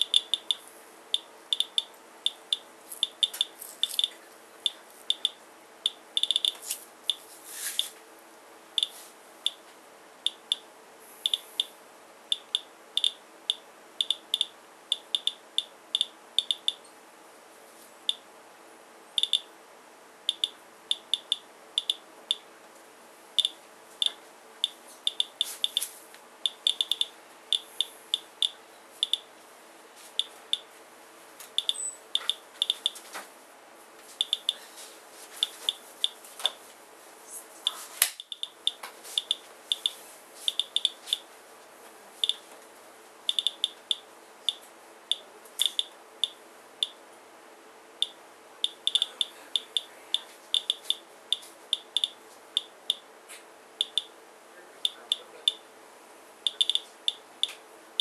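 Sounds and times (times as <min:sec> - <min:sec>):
geiger counter chirping: 0:00.0 - 0:04.1, 0:04.7 - 0:07.2, 0:10.3 - 0:10.6, 0:11.2 - 0:11.7, 0:12.3 - 0:16.8, 0:19.2 - 0:19.5, 0:20.3 - 0:22.5, 0:23.4 - 0:25.8, 0:26.5 - 0:29.3, 0:31.6 - 0:33.0, 0:34.2 - 0:34.6, 0:38.2 - 0:41.0, 0:43.3 - 0:47.0, 0:48.0 - 0:49.9, 0:50.6 - 0:51.0, 0:51.8 - 0:53.0, 0:53.8 - 0:54.1, 0:56.5 - 0:57.2.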